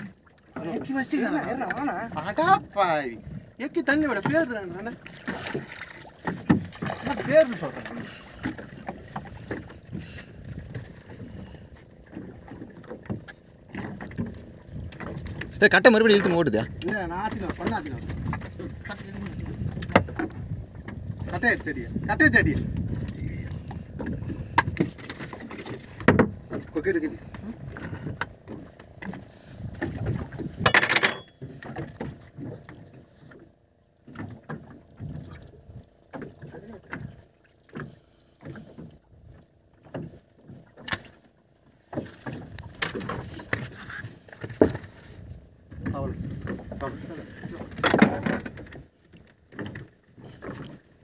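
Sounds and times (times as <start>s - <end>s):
fish splashing in water: 5.1s - 10.2s
fish knocking in boat: 5.2s - 11.5s, 12.1s - 32.8s, 47.5s - 48.9s.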